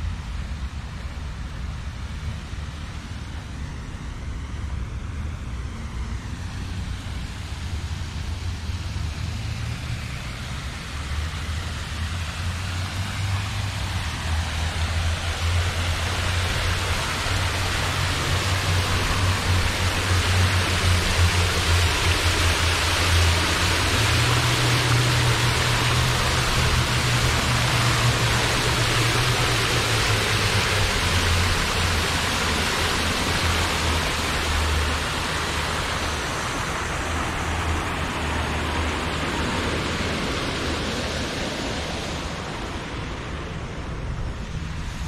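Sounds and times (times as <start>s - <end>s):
fountain water splashing: 0.0s - 45.0s
low rumble: 11.6s - 45.0s.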